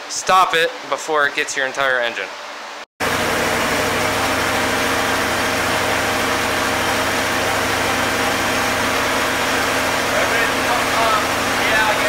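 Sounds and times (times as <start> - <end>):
car engine running steadily: 3.0 - 12.0.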